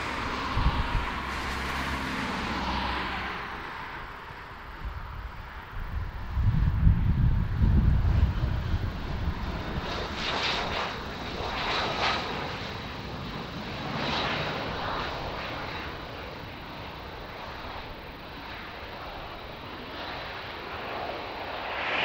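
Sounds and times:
jet engines running: 0.0s - 22.0s.

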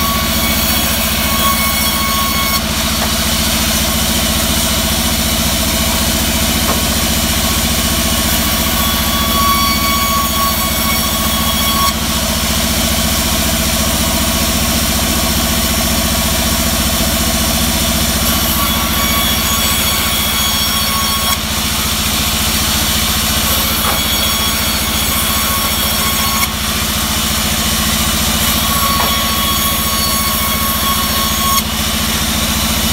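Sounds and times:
bandsaw motor hum: 0.0s - 32.9s
bandsaw singing cut tone: 22.4s - 26.7s, 27.3s - 31.7s.

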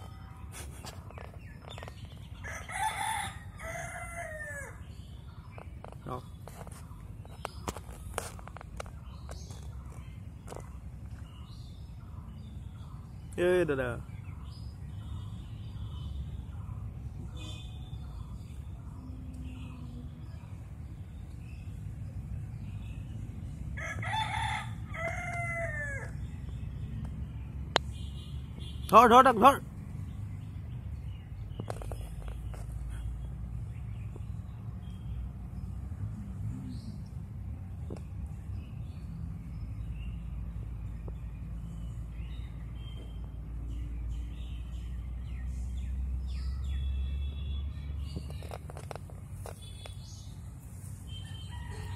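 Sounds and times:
small birds chirping: 0.0s - 51.9s
rooster crowing: 2.4s - 4.8s, 23.8s - 26.2s, 51.2s - 51.9s.

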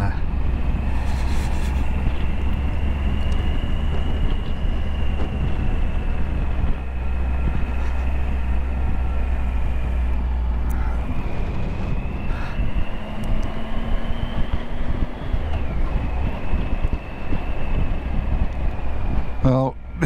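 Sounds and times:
motorcycle engine cruising: 0.0s - 20.0s
wind noise on microphone: 0.0s - 20.0s.

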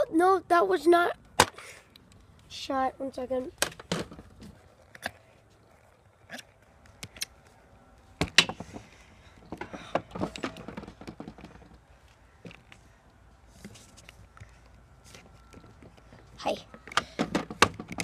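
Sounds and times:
handling clicks and knocks: 8.2s - 12.8s, 13.6s - 18.0s.

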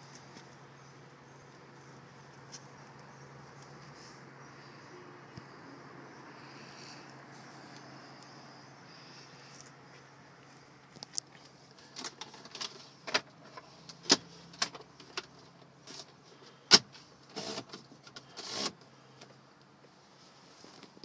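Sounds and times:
faint steady hum: 0.0s - 21.0s
short scraping rubs: 17.3s - 18.8s.

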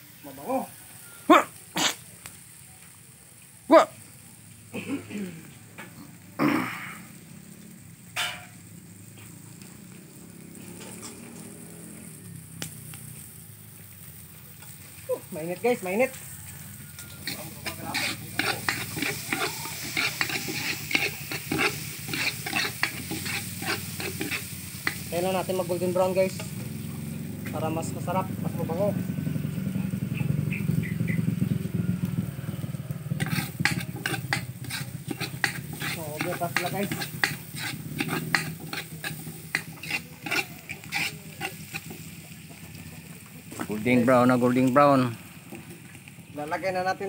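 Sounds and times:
food sizzling in a pan: 0.0s - 47.0s
metal utensil scraping cookware: 8.2s - 8.7s, 16.9s - 26.6s, 33.2s - 42.2s.

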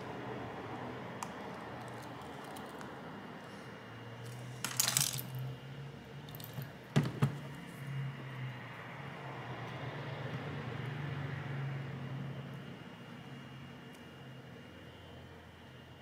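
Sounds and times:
faint steady hum: 0.0s - 16.0s
small phone parts clicking and rattling: 1.4s - 2.9s, 4.2s - 5.4s.

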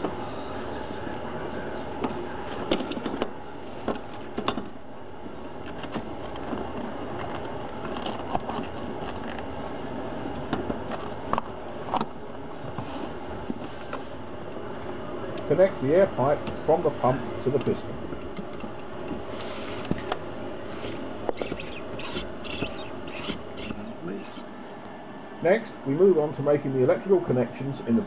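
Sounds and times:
steady background hum: 0.0s - 28.0s.

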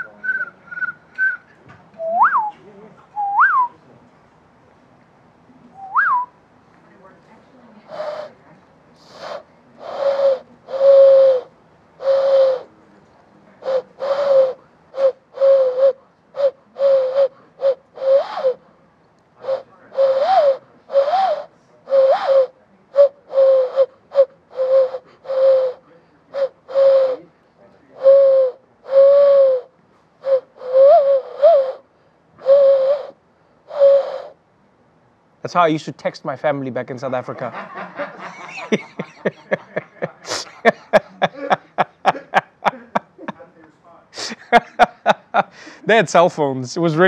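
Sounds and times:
hand whistle bird call: 0.0s - 2.5s, 3.2s - 3.7s, 5.8s - 6.3s, 7.9s - 8.3s, 9.1s - 12.6s, 13.6s - 18.6s, 19.4s - 25.8s, 26.4s - 27.2s, 28.0s - 31.8s, 32.4s - 34.4s.

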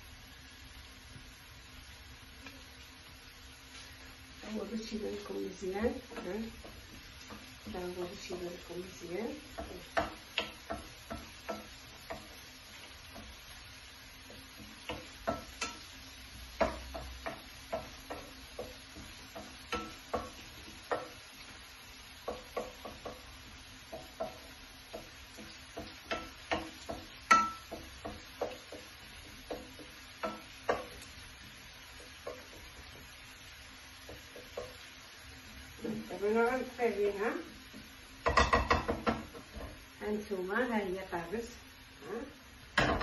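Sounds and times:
faint sizzle: 0.0s - 43.0s
spoon tapping and scraping pan: 4.9s - 39.9s, 42.7s - 43.0s.

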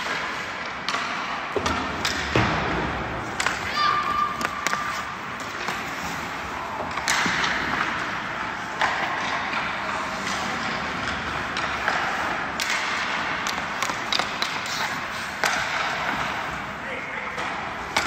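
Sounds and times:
skate blades scraping ice: 0.0s - 16.8s
hockey sticks and pucks clacking: 0.0s - 18.0s.

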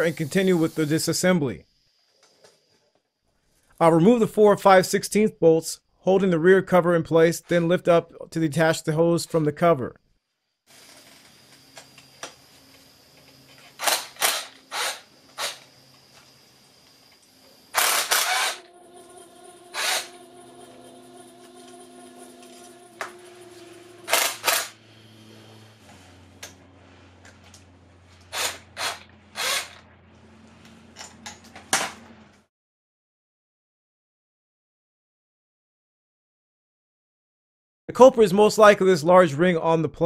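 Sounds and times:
faint steady hum: 14.5s - 28.0s.

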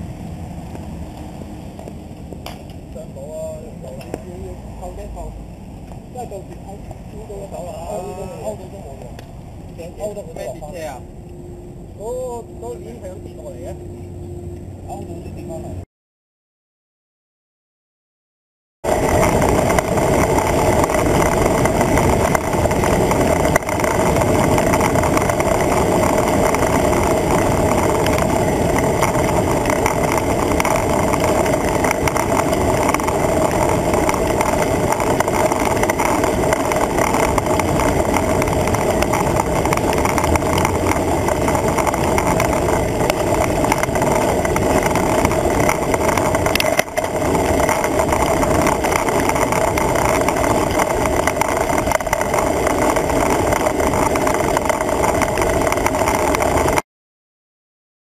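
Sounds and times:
bicycle tyre noise: 0.0s - 13.8s, 18.8s - 56.8s
wind rushing: 18.8s - 56.8s.

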